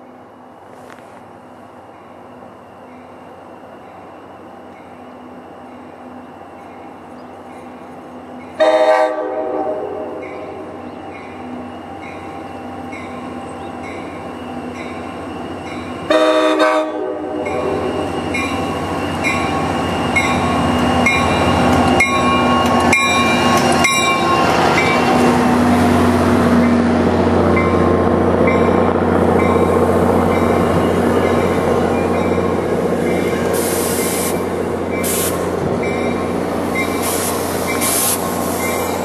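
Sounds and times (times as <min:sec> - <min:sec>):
diesel engine and wheels: 0:00.0 - 0:39.0
locomotive horn blasts: 0:08.6 - 0:10.7, 0:16.0 - 0:18.0.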